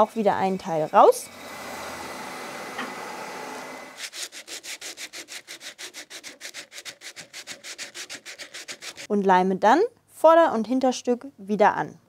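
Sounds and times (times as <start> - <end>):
hand-sanding wood: 0.0 - 9.1.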